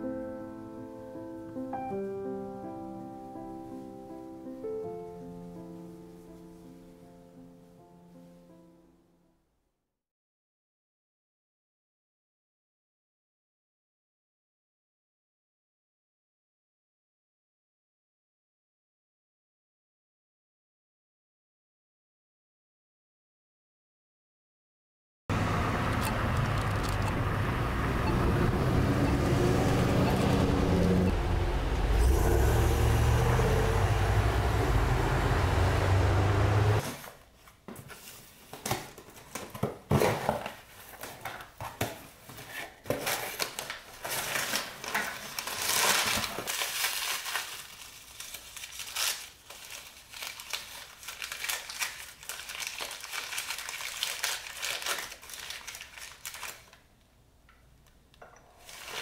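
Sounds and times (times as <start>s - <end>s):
passing traffic: 25.3s - 36.8s
plastic wrapping crinkling and tearing: 42.7s - 56.9s, 58.6s - 59.0s.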